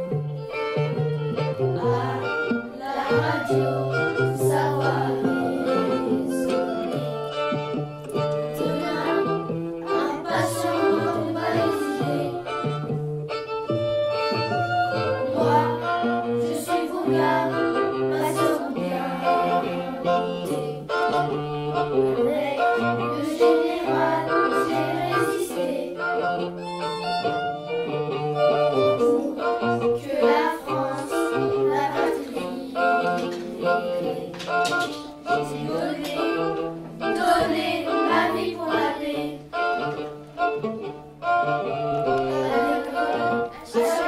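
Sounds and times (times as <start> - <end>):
instrumental accompaniment: 0.0 - 44.0
person singing: 1.6 - 7.3.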